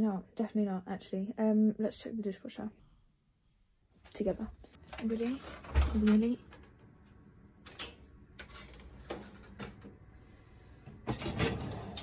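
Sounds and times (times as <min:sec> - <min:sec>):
dishwasher rack clatter: 0:11.0 - 0:12.0
dishwasher racks clicking: 0:11.0 - 0:12.0.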